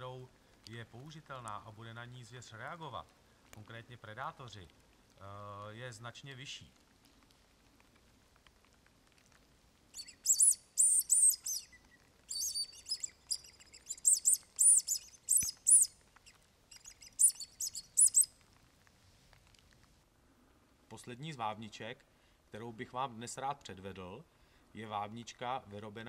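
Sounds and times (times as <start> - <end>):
high mouse-squeak predator call: 10.0 - 15.9, 16.7 - 18.3.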